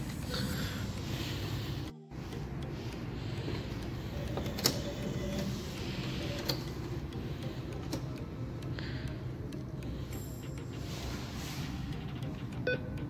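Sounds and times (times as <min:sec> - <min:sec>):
faint machine ticks: 0:00.0 - 0:13.0
steady low hum: 0:00.0 - 0:13.0
card reader clicking: 0:03.4 - 0:08.7.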